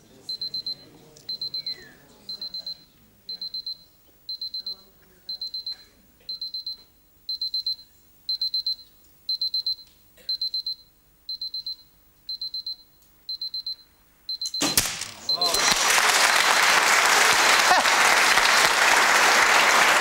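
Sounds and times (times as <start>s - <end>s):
alarm clock beeping: 0.3s - 15.8s.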